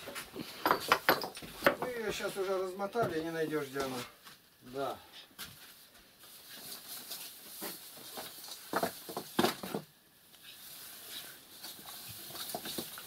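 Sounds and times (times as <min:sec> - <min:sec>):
fishing net rustling and scraping: 0:05.7 - 0:09.2, 0:10.4 - 0:13.0.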